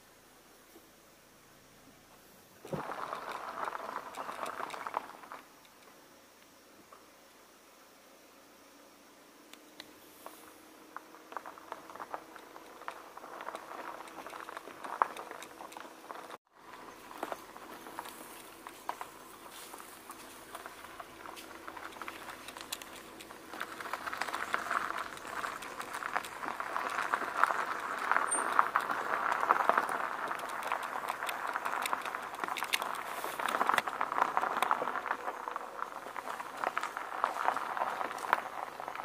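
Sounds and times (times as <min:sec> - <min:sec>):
footsteps on dry leaves: 0:16.6 - 0:39.0.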